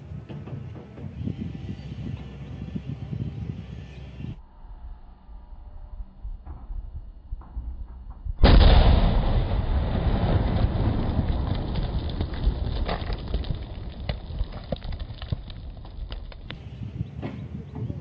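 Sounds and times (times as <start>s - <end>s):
explosive blast: 8.4s - 16.0s
rock fragments falling and landing: 8.5s - 16.6s.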